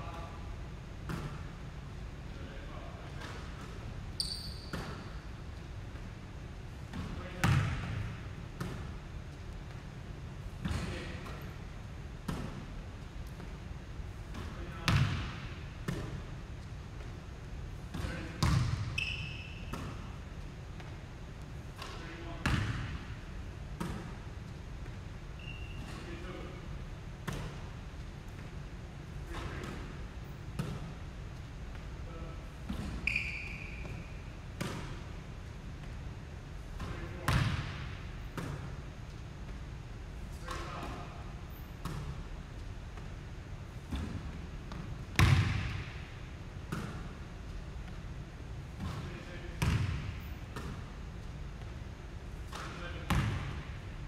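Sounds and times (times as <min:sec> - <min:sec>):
basketballs bouncing on wood floor: 0:06.9 - 0:08.9, 0:14.3 - 0:16.2, 0:17.9 - 0:19.1, 0:21.8 - 0:23.0, 0:36.8 - 0:38.8, 0:43.9 - 0:46.0, 0:48.8 - 0:50.9, 0:52.5 - 0:53.6.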